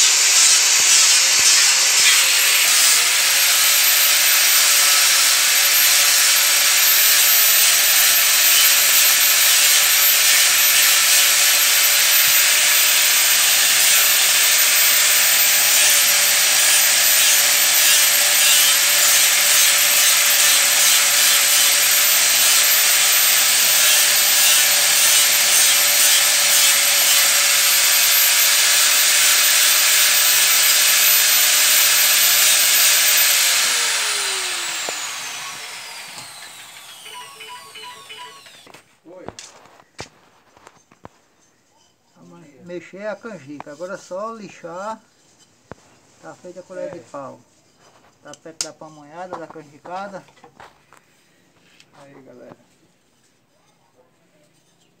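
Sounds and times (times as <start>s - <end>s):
angle grinder whining: 0.0s - 38.8s.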